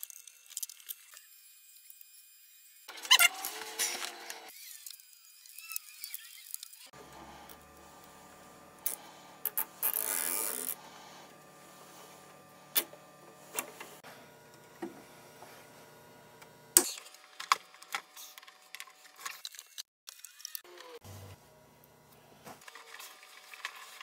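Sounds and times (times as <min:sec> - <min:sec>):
cable tie zipping tight: 0:09.5 - 0:10.8.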